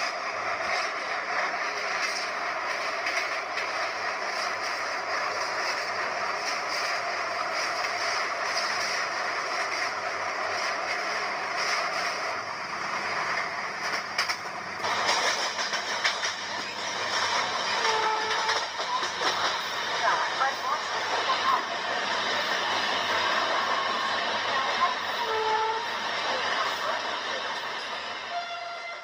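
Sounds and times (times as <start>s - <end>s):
train wheels rumbling and rattling: 0.0s - 29.0s
sharp clacks: 13.8s - 19.7s.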